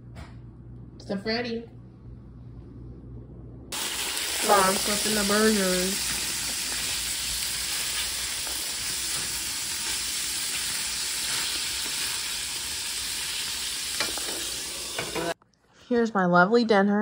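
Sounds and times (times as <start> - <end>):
patties sizzling in a frying pan: 3.8 - 15.4.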